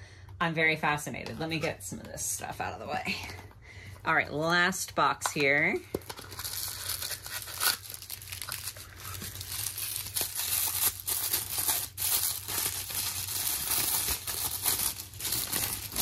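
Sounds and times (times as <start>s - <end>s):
tissue paper crinkling: 6.1s - 16.0s.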